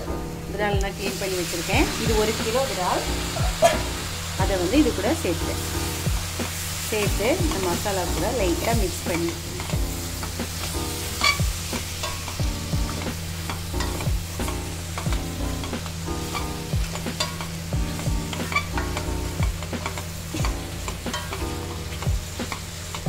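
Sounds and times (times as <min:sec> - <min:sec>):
masala sizzling: 0:00.0 - 0:23.0
spatula scraping a pan: 0:09.0 - 0:23.0.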